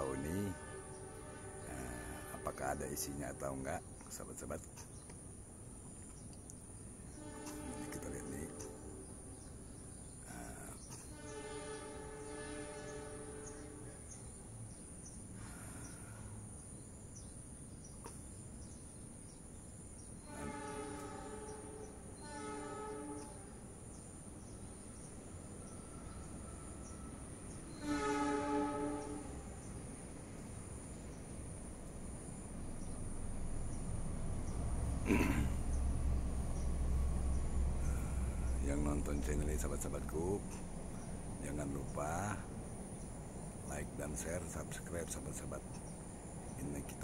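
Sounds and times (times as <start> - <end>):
long horn blasts: 0.0 - 3.7, 7.1 - 9.6, 11.1 - 14.2, 20.2 - 23.7, 27.7 - 29.7, 37.8 - 41.1.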